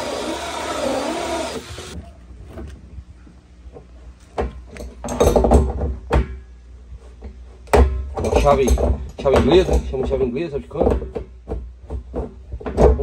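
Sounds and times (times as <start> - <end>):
drill with hole saw cutting plastic: 0.0 - 2.0
wrench knocks and clunks: 4.4 - 6.4, 7.7 - 13.0.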